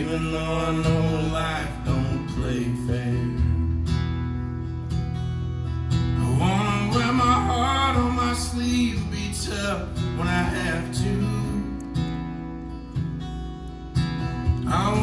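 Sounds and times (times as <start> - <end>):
man singing: 0.0 - 3.7, 6.2 - 11.9, 14.6 - 15.0
acoustic guitar strumming: 0.0 - 15.0.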